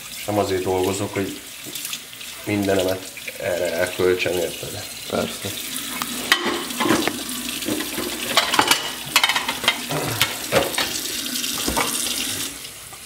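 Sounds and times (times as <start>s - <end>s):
tap running into a sink: 5.4s - 13.0s
dishes clinking and knocking: 6.2s - 12.2s.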